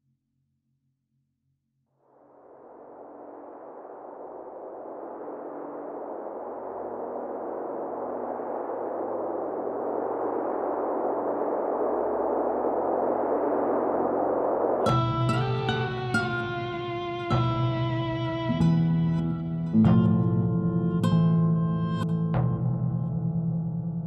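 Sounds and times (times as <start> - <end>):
plucked-string music: 14.9 - 23.1.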